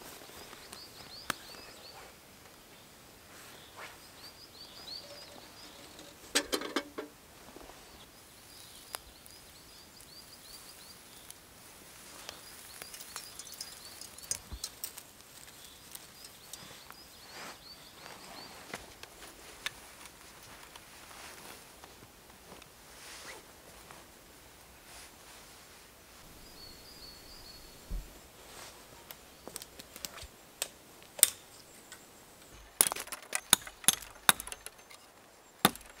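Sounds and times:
small bird chirping: 0.1 - 6.3, 12.2 - 18.7, 26.3 - 28.0
clothing and gear rustling: 12.0 - 30.4.

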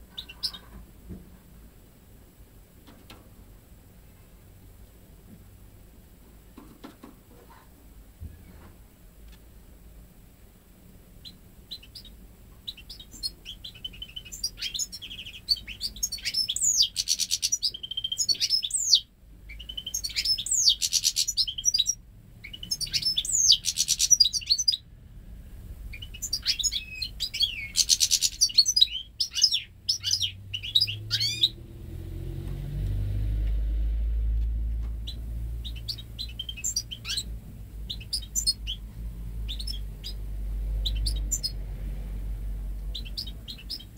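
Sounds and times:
bird singing twittering phrases: 11.2 - 24.9, 25.9 - 31.8, 35.0 - 41.6, 42.8 - 43.9.

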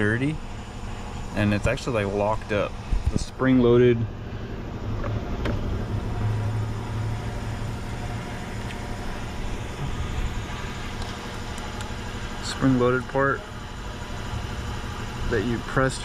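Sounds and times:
car engine idling: 0.0 - 15.9.

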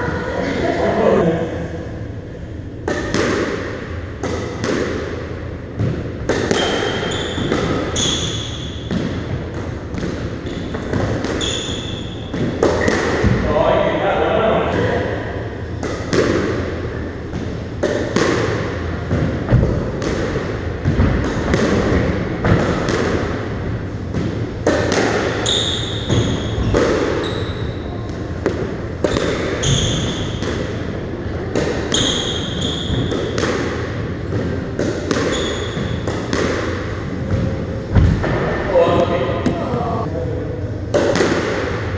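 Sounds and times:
squash ball hits: 2.8 - 13.5, 15.7 - 39.9, 40.9 - 41.9
shoes squeaking on wooden floor: 35.3 - 35.8.

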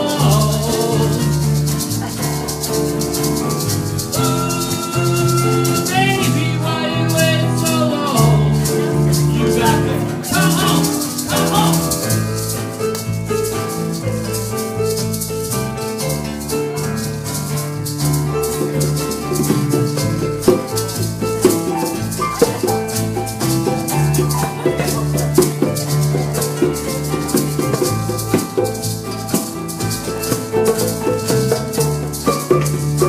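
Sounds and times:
maraca shaken: 0.0 - 33.0
live rock band instrumental: 17.5 - 33.0.

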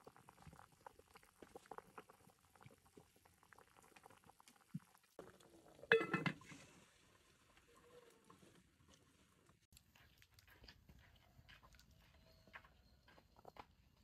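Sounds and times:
soup bubbling in a pot: 0.0 - 9.5
metal lid scraping and clanking: 5.9 - 6.5.

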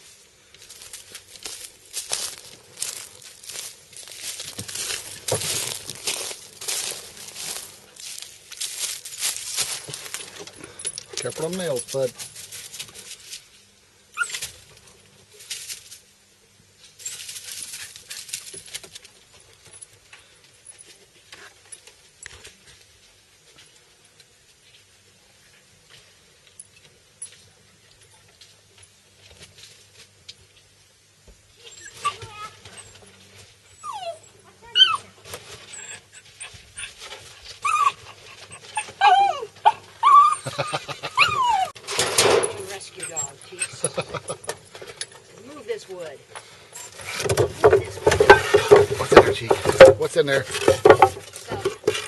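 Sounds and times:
dry leaves rustling: 0.0 - 16.1, 16.8 - 19.3
dog whining: 33.8 - 35.1, 37.6 - 41.8.

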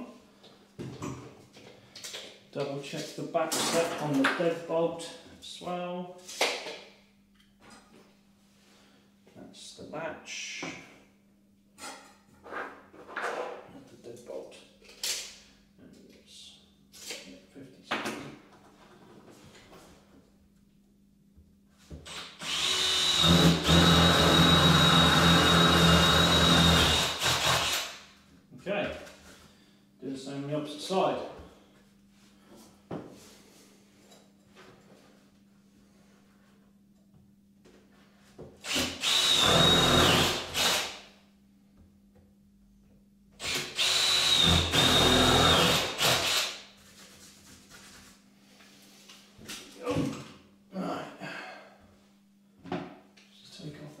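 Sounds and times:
drill boring into wood: 22.1 - 28.0, 38.6 - 41.0, 43.4 - 46.6.

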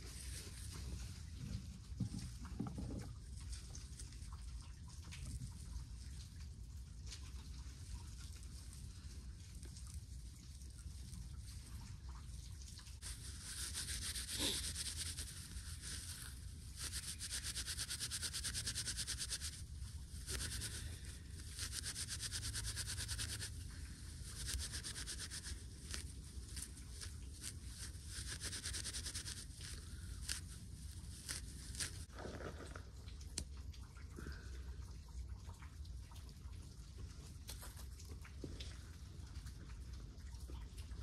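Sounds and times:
dry plant fibres rubbed by hand: 0.0 - 2.1, 13.0 - 32.8.

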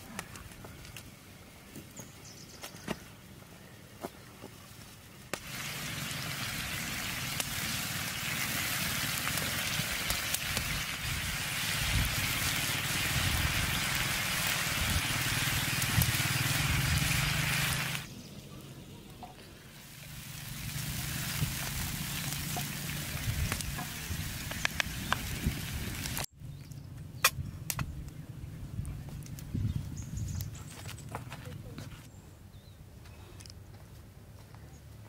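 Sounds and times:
food sizzling on an iron pan: 5.4 - 18.1, 19.8 - 26.3.

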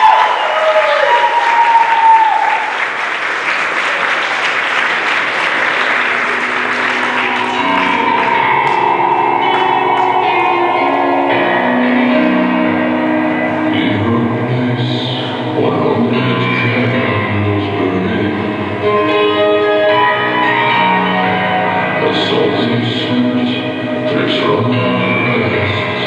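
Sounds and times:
person whooping: 0.0 - 2.8, 6.1 - 11.9
people clapping and cheering: 0.0 - 12.5
music: 4.1 - 26.0.

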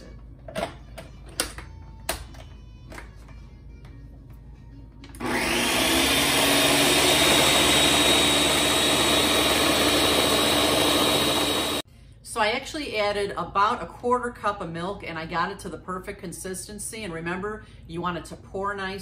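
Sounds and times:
blender motor whining: 5.2 - 11.8.

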